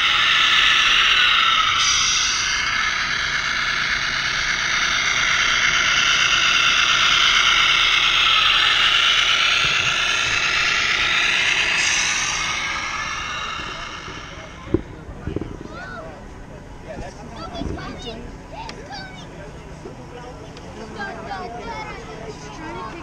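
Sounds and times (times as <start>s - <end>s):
electric motor and gearbox whining: 0.0s - 14.9s.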